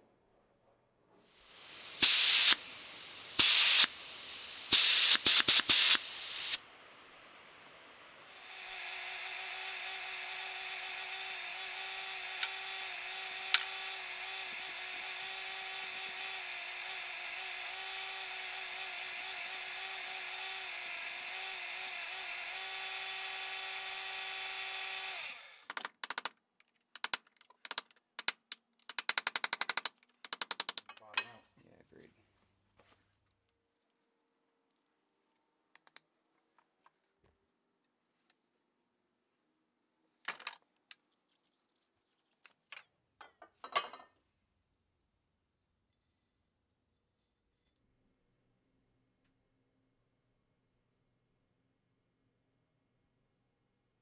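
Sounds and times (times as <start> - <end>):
metal clicking and scraping: 25.7 - 31.1.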